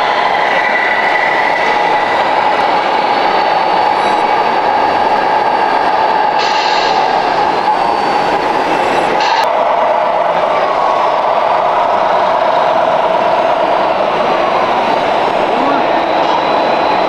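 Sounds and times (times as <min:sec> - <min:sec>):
exhibition hall noise: 0:07.0 - 0:17.0.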